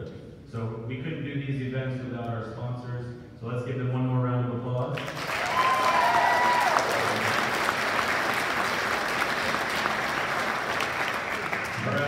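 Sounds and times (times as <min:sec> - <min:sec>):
audience clapping: 0:05.0 - 0:12.0
high cheer: 0:05.2 - 0:12.0.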